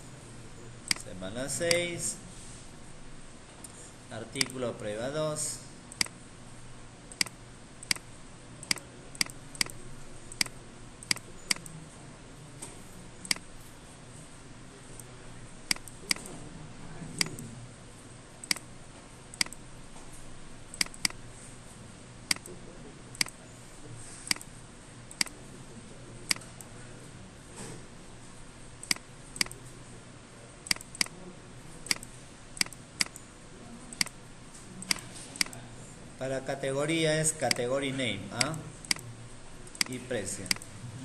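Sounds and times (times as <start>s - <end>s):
background noise: 0.0s - 41.0s
computer mouse clicking: 0.9s - 1.9s, 7.1s - 11.8s, 15.7s - 16.4s, 17.2s - 17.5s, 18.4s - 18.7s, 19.3s - 19.6s, 20.7s - 21.2s, 22.3s - 22.6s, 23.2s - 23.4s, 24.3s - 24.5s, 25.1s - 25.4s, 28.8s - 29.6s, 30.6s - 31.2s, 31.8s - 33.2s, 34.8s - 35.6s, 39.7s - 40.7s.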